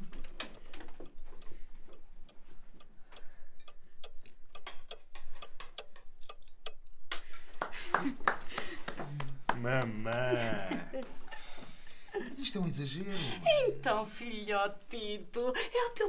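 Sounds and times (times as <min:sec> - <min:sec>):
clock ticking: 0:00.0 - 0:07.4.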